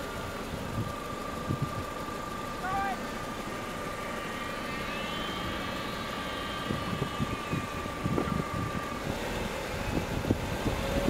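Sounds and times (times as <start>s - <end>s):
car engine and tyre rumble: 0.0s - 11.0s
thin steady whine: 0.0s - 11.0s
wind buffeting on microphone: 0.7s - 1.8s, 6.3s - 11.0s.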